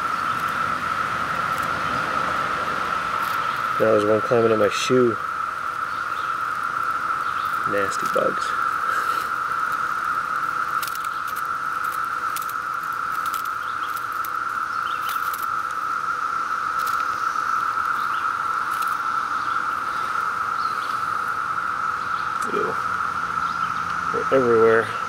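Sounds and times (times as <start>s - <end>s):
cicada chorus drone: 0.0s - 25.0s
faint clicks and ticks: 1.4s - 1.8s, 3.2s - 3.8s, 6.4s - 15.8s, 16.7s - 19.0s.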